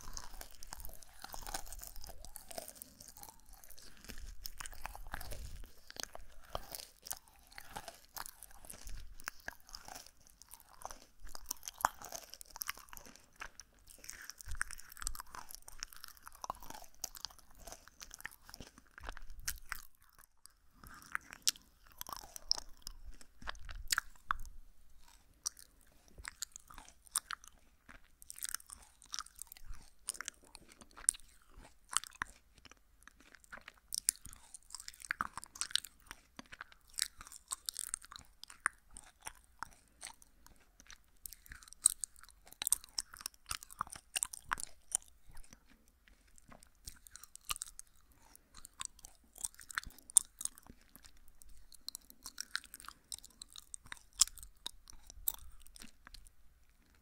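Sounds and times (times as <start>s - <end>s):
chewing jelly candy: 0.0s - 57.0s.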